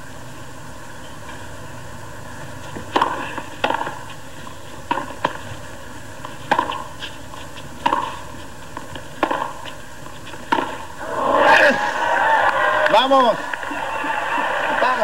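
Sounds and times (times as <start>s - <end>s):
racquets hitting tennis ball: 2.7s - 11.0s
tennis ball bouncing: 2.7s - 11.0s
hushed crowd: 11.0s - 15.0s.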